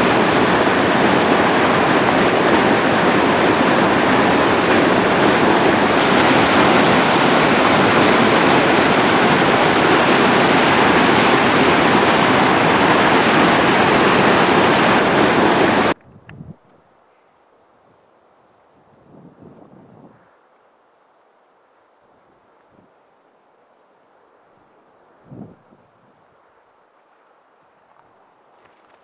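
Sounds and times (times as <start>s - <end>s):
whitewater rushing: 0.0s - 16.0s.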